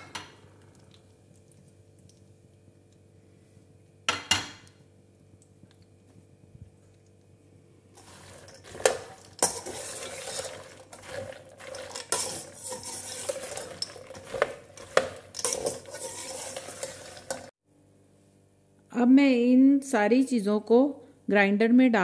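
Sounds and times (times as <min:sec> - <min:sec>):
light sizzle: 0:00.0 - 0:17.6
nuts rattling against a pan: 0:08.0 - 0:17.5
spoon clinking on steel: 0:11.7 - 0:17.5.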